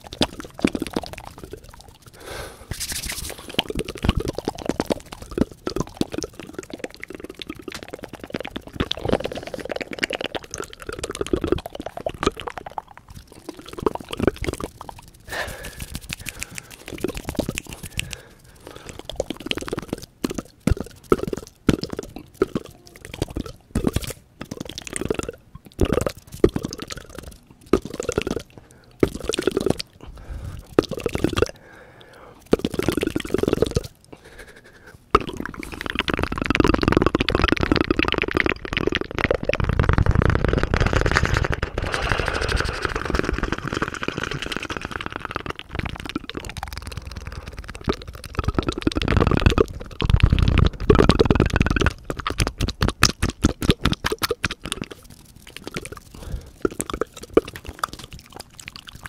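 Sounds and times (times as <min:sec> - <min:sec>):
mouth clicks: 0:00.0 - 0:59.0
wet mouth fluttering: 0:00.0 - 0:59.0.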